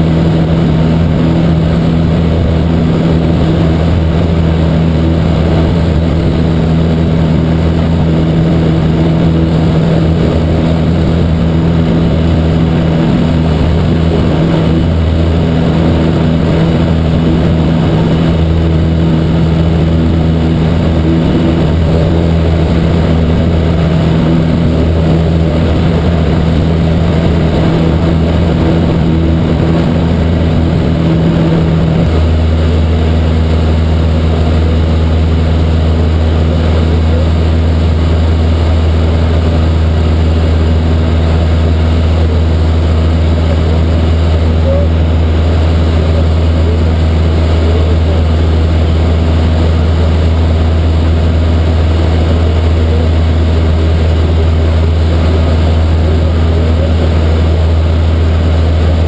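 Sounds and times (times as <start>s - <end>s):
light aircraft engine in cabin: 0.0s - 59.0s.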